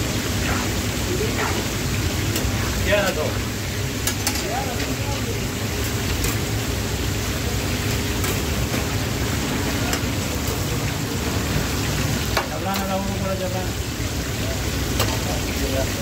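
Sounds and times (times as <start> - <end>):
hot oil sizzling in a frying pan: 0.0 - 16.0.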